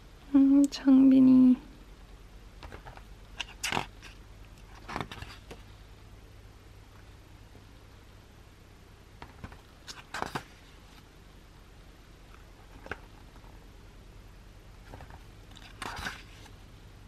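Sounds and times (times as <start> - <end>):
low steady hum: 0.0 - 17.0
pages turning: 2.6 - 5.6, 9.2 - 11.1, 12.6 - 13.6, 14.8 - 16.6.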